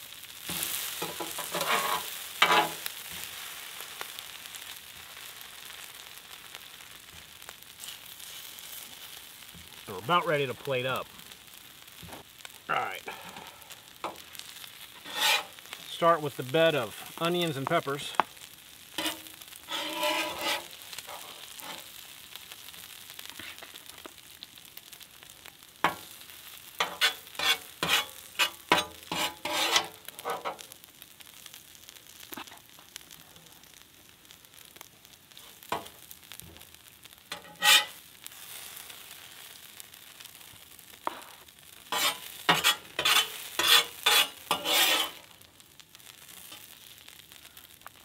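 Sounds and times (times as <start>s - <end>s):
food sizzling: 0.0s - 48.0s
metal spatula scraping griddle: 0.4s - 3.5s, 13.2s - 16.3s, 18.9s - 22.0s, 26.8s - 30.7s, 37.3s - 38.9s, 41.0s - 45.3s.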